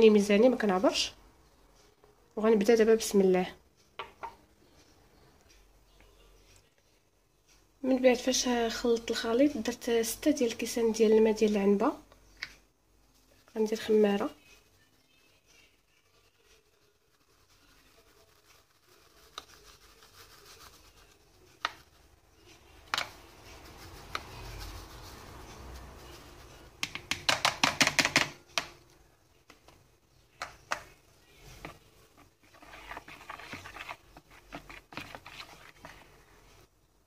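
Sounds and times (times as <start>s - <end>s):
yeast sifted through plastic sieve: 13.2s - 27.0s, 30.8s - 36.7s
hand whisk stirring batter: 13.3s - 28.1s, 30.4s - 36.7s.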